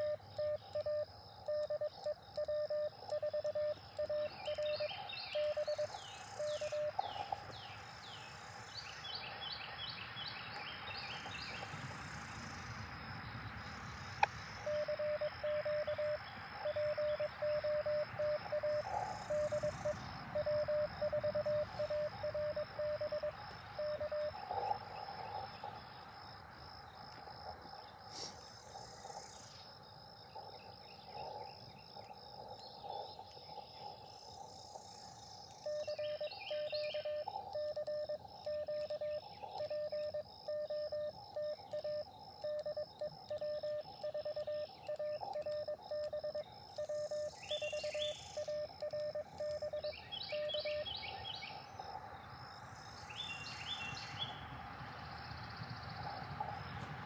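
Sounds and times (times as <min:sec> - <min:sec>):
morse code beeping: 0:00.0 - 0:07.0, 0:14.7 - 0:24.8, 0:35.6 - 0:50.9
radio band hiss: 0:28.1 - 0:29.3.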